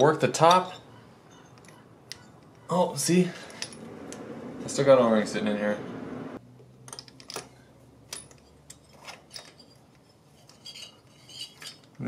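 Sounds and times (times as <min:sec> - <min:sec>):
metal engine parts clinking: 0:00.0 - 0:04.2, 0:06.8 - 0:12.0.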